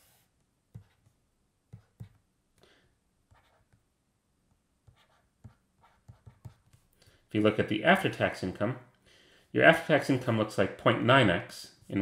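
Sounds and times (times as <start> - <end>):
stylus tapping on tablet: 0.7 - 2.2, 5.4 - 6.8.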